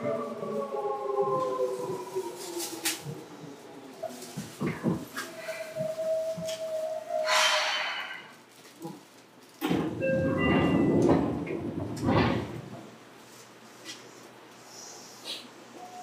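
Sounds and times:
train rumbling: 0.0s - 13.6s
air hiss: 7.2s - 8.3s.

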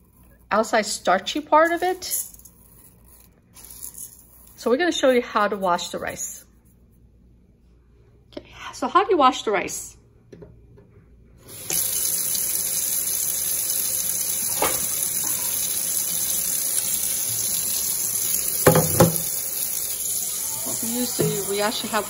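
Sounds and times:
faucet running into steel sink: 11.4s - 22.0s.

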